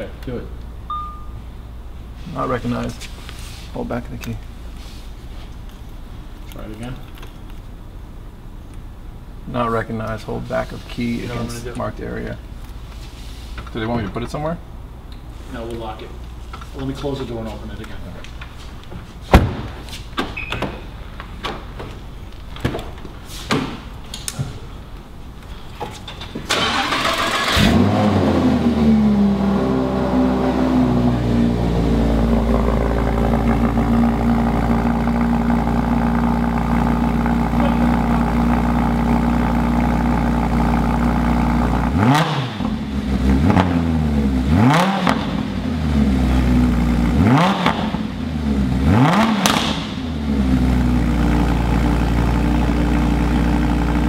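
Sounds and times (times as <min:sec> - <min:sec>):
thump: 0:19.3 - 0:20.3
car engine idling: 0:26.5 - 0:44.4, 0:49.4 - 0:54.0.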